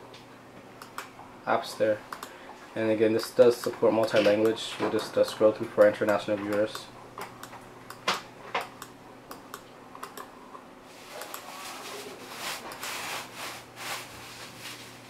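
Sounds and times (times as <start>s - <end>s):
computer mouse clicks: 8.6s - 10.3s
soft rubbing and handling: 10.9s - 15.0s.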